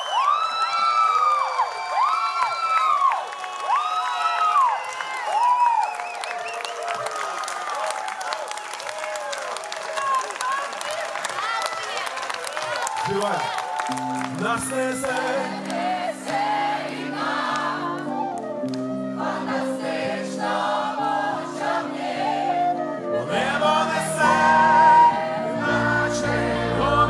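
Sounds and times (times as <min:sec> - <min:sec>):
young choir singing: 0:14.6 - 0:18.3, 0:18.9 - 0:27.0.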